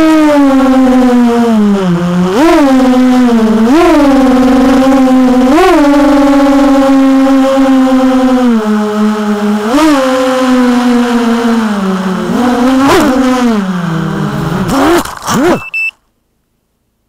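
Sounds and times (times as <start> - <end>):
drone motors whining: 0.0 - 9.6.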